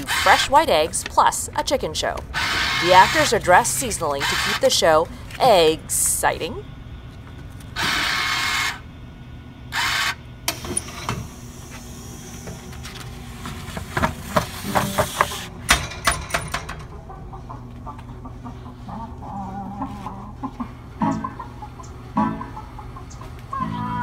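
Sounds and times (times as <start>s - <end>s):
bill acceptor whirring: 0.0s - 6.4s, 7.4s - 8.9s, 9.7s - 17.0s
vending mechanism clicking and clattering: 14.0s - 17.0s.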